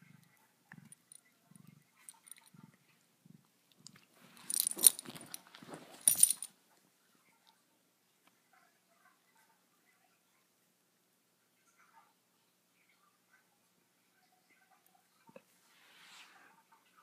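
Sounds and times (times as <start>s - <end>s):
collar tag clinking: 3.8s - 6.5s
cat scuffling: 4.0s - 6.5s.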